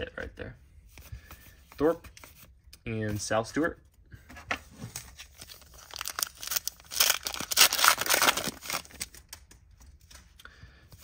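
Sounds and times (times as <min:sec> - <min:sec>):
foil wrapper tearing and crinkling: 0:05.4 - 0:09.4.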